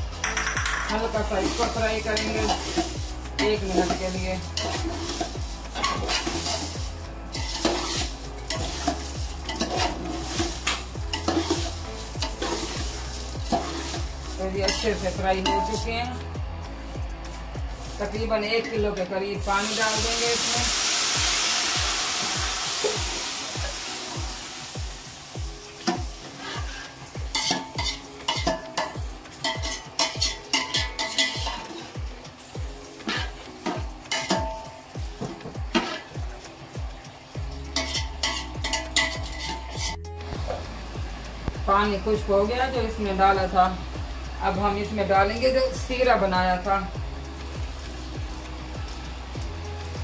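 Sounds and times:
food sizzling: 0.0s - 50.0s
metal spoon scraping a pot: 0.3s - 15.8s, 26.3s - 32.0s, 33.0s - 34.6s, 37.8s - 40.0s.

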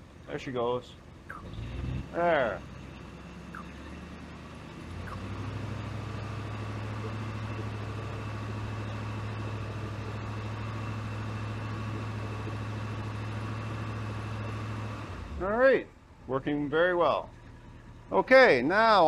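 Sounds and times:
car engine fast idle: 2.1s - 16.2s, 17.1s - 18.3s.

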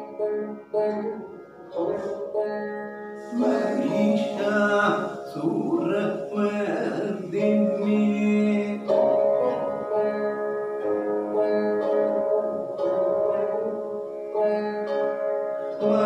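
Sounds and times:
veena plucked: 0.0s - 16.0s
man singing: 3.3s - 9.7s.

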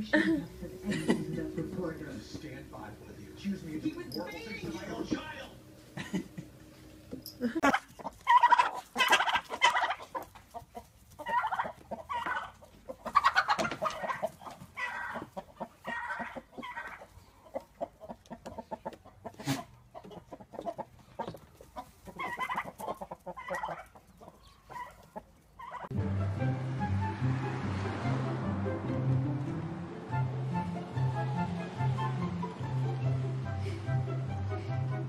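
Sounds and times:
chickens clucking: 0.0s - 25.9s.

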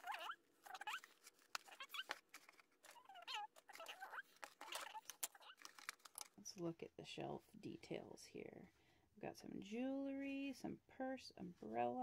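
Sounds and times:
plastic toy pieces clicking: 2.8s - 6.3s.

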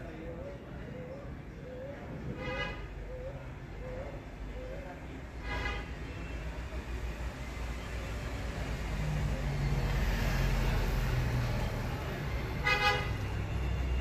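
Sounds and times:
road traffic rumble: 0.0s - 14.0s
passing vehicle hum: 5.9s - 14.0s
vehicle horn toot: 12.6s - 13.2s.

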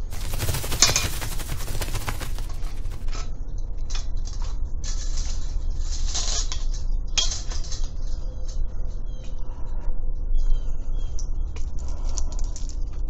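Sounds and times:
short hissy bursts: 0.0s - 3.1s
steady low rumble: 0.0s - 3.1s.

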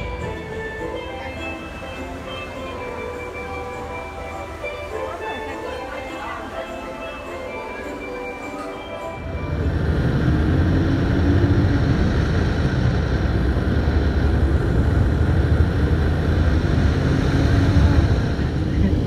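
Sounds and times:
vehicle engine and road rumble: 9.3s - 19.0s.

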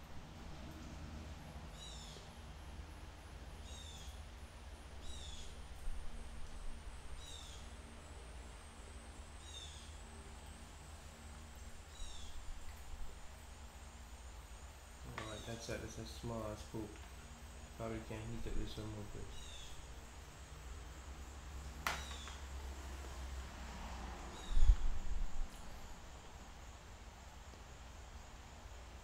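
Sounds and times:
low steady hum: 0.0s - 29.0s
bird chirping: 1.7s - 2.4s, 3.6s - 4.2s, 4.9s - 5.6s, 7.2s - 7.8s, 9.4s - 10.1s, 11.9s - 12.5s, 15.1s - 16.2s, 18.1s - 19.9s, 21.8s - 22.5s, 24.3s - 25.0s.

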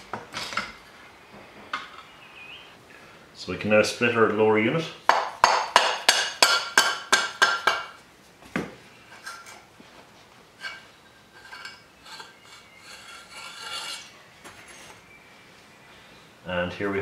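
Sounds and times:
sharp metallic knocks: 5.1s - 8.0s
metallic scraping and rubbing: 10.6s - 15.0s.

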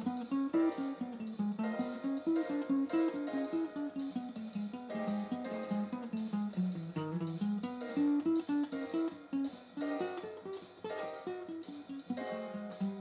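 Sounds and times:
guitar music: 0.0s - 13.0s.

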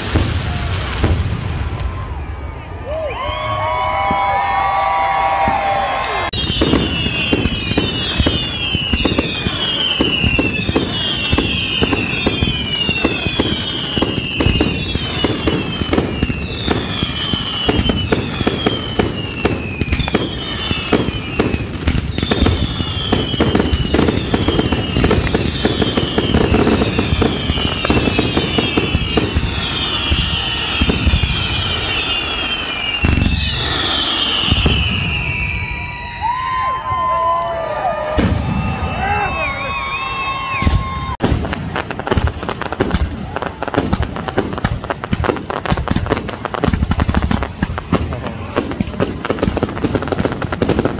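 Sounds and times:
fireworks bangs and crackles: 0.0s - 50.9s
firework whistles falling in pitch: 1.8s - 41.5s.

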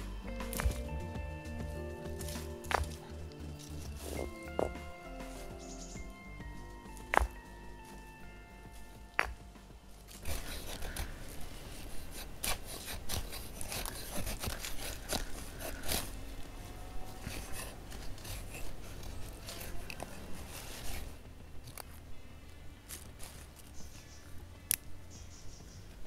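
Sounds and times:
knife scraping wooden stick: 10.1s - 16.4s, 17.1s - 21.1s.

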